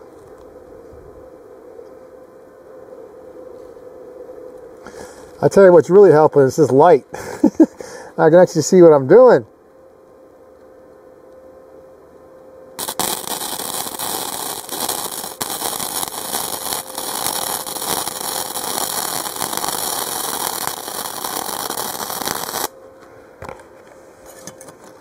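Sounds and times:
welder arc crackling: 12.8 - 22.8.

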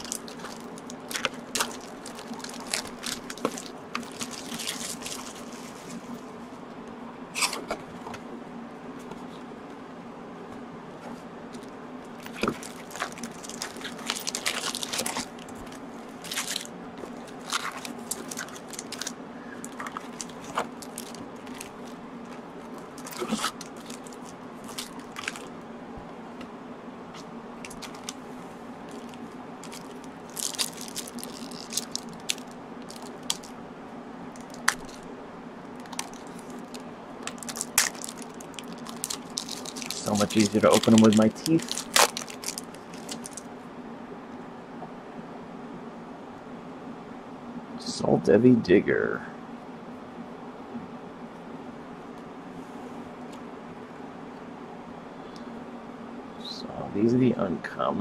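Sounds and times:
foil wrappers crinkling: 0.0 - 6.3, 11.6 - 25.6, 27.2 - 33.6, 34.3 - 35.1, 35.7 - 43.5.

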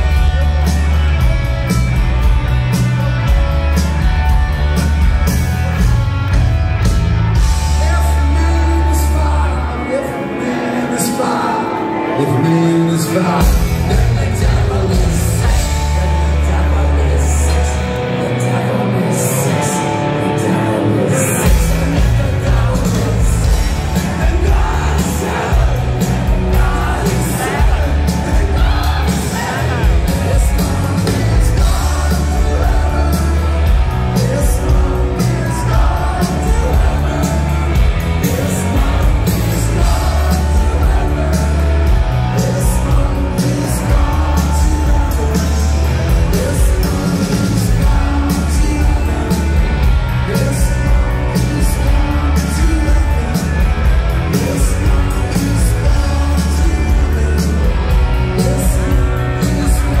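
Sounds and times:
live rock band: 0.0 - 60.0
sung lead vocal: 7.2 - 60.0.

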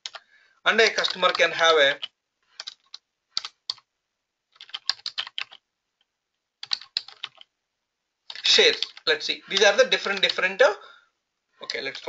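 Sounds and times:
typing on computer keyboard: 0.0 - 0.2, 0.9 - 3.9, 4.6 - 5.6, 6.6 - 7.5, 8.3 - 10.4.

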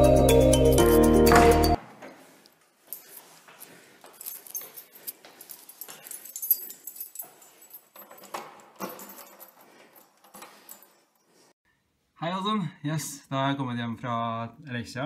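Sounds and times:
keys jangling: 2.8 - 11.5
handling clicks and knocks: 2.9 - 11.3.

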